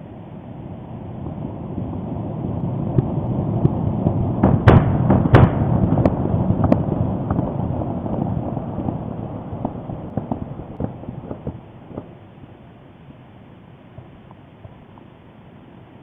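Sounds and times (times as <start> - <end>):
deep volcanic rumble: 0.0 - 15.0
sharp explosive cracks: 1.1 - 12.4.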